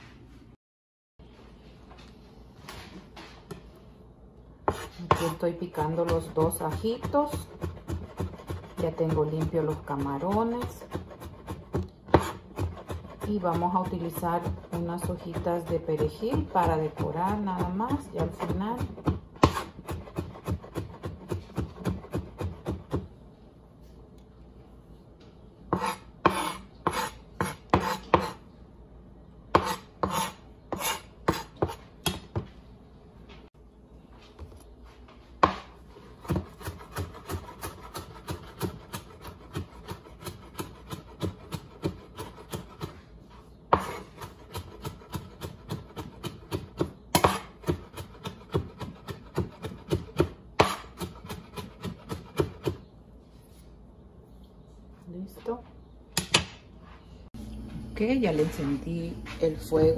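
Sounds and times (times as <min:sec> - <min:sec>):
knife chopping on plastic board: 0:04.7 - 0:23.1, 0:25.8 - 0:28.4, 0:35.4 - 0:43.0, 0:43.7 - 0:52.8.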